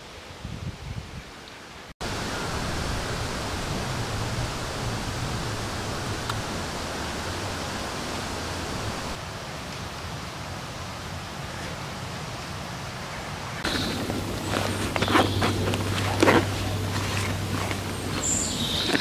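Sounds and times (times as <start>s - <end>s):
steady rushing noise: 2.0s - 9.4s, 13.6s - 19.0s.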